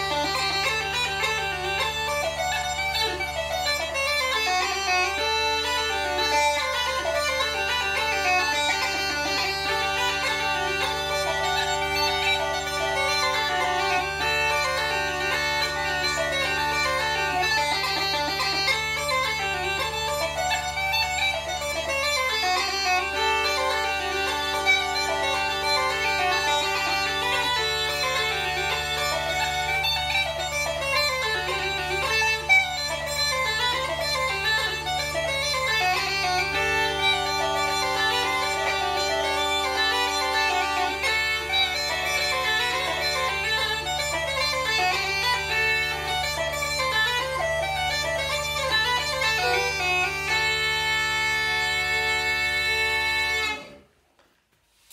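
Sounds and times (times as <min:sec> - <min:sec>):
bagpipe drones humming: 0:00.0 - 0:53.9
bagpipe chanter melody: 0:00.0 - 0:54.0.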